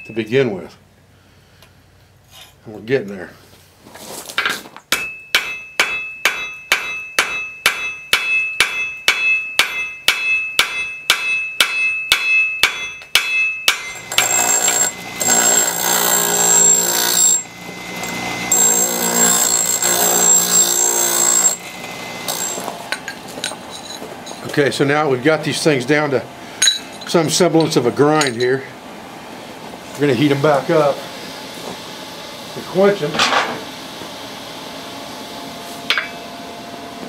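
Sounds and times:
hammer ringing on anvil: 4.9s - 21.7s
bench grinder whining: 13.9s - 24.5s.

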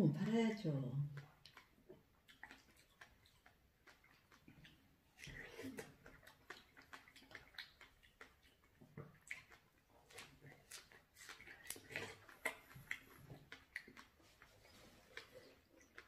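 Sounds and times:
people chewing strawberries: 1.0s - 16.0s.

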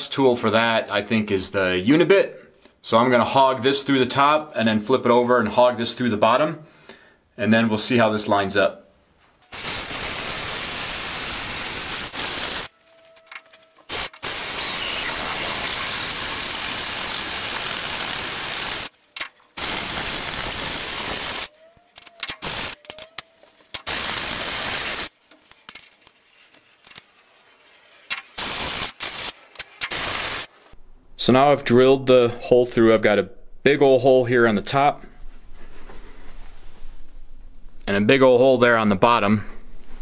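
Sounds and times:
cordless drill drilling metal: 13.4s - 19.0s.

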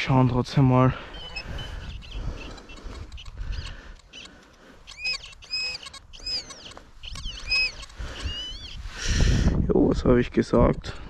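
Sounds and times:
metal detector beeps: 1.1s - 8.8s.

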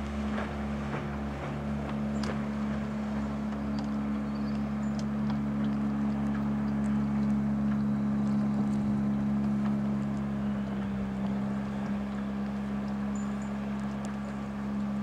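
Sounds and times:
outboard motor running: 0.0s - 15.0s.

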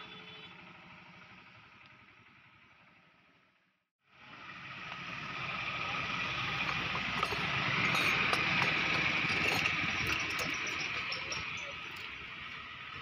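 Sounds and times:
vehicle passing on road: 0.0s - 13.0s.

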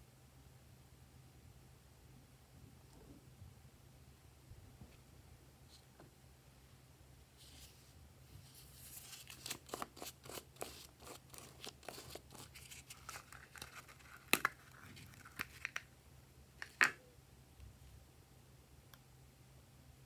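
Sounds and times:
plastic packaging crinkling: 8.8s - 15.9s.

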